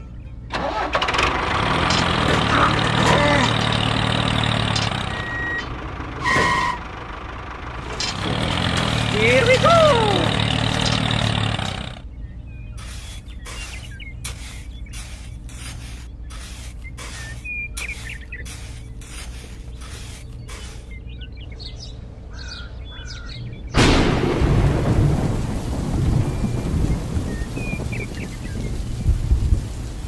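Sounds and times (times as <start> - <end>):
birds chirping: 0.0 - 24.0, 26.0 - 29.2
heavy rain: 0.6 - 6.4, 7.7 - 12.0, 23.8 - 30.0
metal trowel scraping sand: 12.8 - 21.0
loud thunderclap: 23.8 - 29.8.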